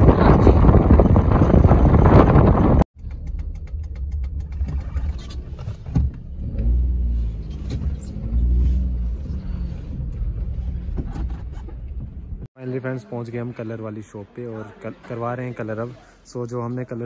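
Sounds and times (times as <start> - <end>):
wind buffeting microphone: 0.0 - 2.9
car engine rumble inside cabin: 0.3 - 12.5.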